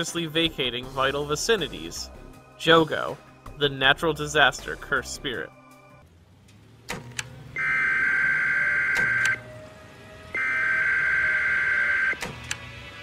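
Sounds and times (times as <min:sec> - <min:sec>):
electronic alarm beeps: 0:07.6 - 0:09.4, 0:10.4 - 0:12.2.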